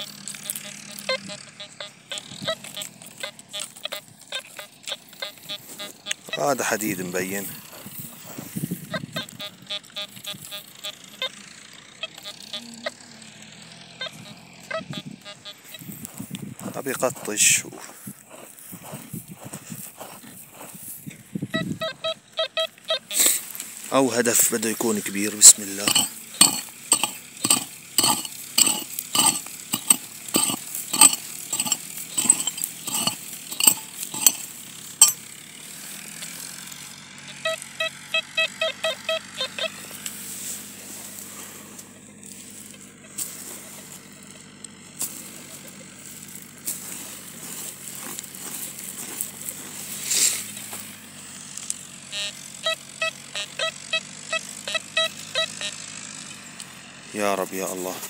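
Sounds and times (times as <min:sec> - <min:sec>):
metal detector short beeps: 0:00.0 - 0:06.6, 0:07.7 - 0:11.3, 0:21.6 - 0:23.4, 0:25.4 - 0:35.2, 0:37.4 - 0:39.9, 0:52.1 - 0:55.8
digging tool striking stony soil: 0:25.8 - 0:35.2.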